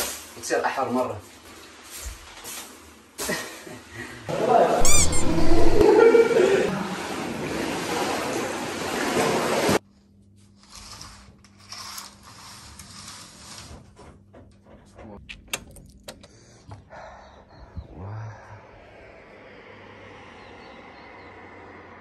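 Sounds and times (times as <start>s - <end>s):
water splashing in a pool: 6.4s - 9.8s.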